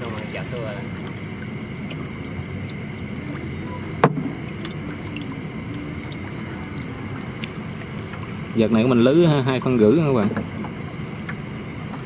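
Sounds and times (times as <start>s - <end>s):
water swishing along a boat: 0.0s - 12.0s.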